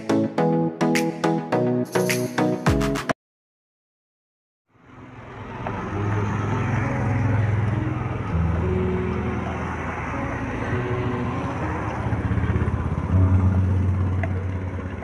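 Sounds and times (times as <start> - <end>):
street traffic rumble: 4.7 - 15.0.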